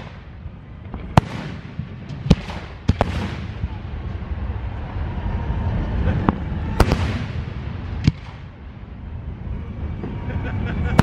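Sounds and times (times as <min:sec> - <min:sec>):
firework bangs: 0:00.0 - 0:04.0, 0:06.2 - 0:08.7
low rumble: 0:00.0 - 0:11.0.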